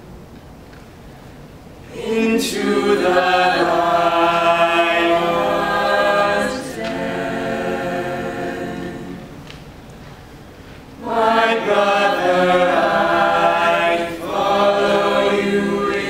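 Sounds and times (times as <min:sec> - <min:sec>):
a cappella group singing chords: 0:01.8 - 0:09.6, 0:11.0 - 0:16.0.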